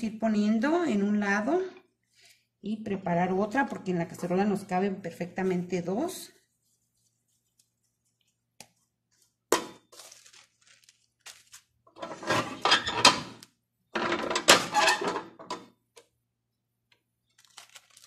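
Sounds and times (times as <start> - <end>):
plastic crinkling: 6.6 - 12.0, 17.2 - 18.0
tortilla press clattering: 14.0 - 15.4.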